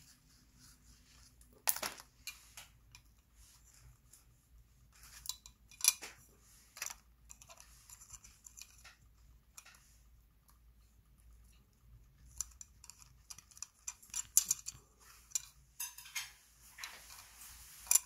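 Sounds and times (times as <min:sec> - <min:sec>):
plastic parts clicking and scraping: 0:05.0 - 0:10.0, 0:11.4 - 0:18.0.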